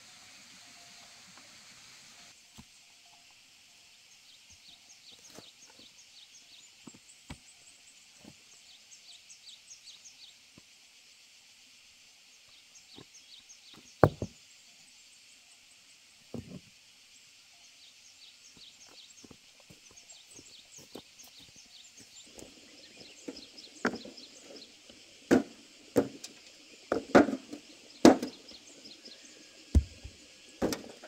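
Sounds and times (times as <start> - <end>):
dull knocks and thuds in soil: 6.8 - 7.5, 13.7 - 14.4, 16.3 - 16.6, 22.1 - 28.5, 29.7 - 31.0.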